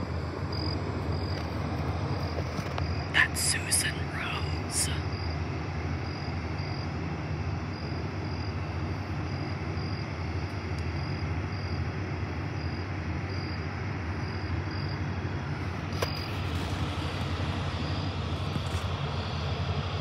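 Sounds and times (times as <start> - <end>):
boat diesel engine drone: 0.0 - 20.0.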